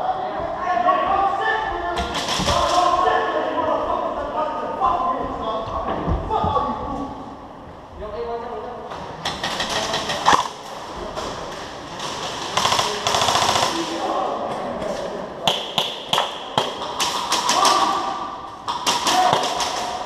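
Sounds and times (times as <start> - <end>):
airsoft guns rapid fire: 9.2 - 10.6, 12.0 - 14.1, 15.5 - 18.1, 18.7 - 20.0.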